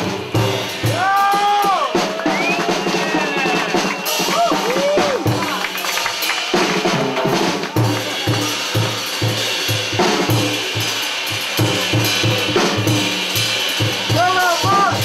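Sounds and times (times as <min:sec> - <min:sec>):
jazz drum kit: 0:00.0 - 0:15.0.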